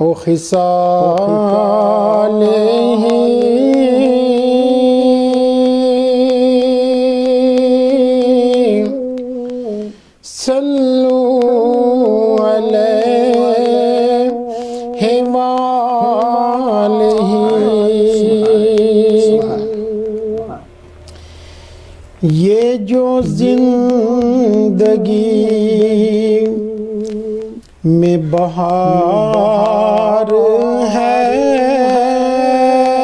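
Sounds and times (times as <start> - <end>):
humming backing vocals: 0.0 - 33.0
person singing held notes: 14.3 - 20.7.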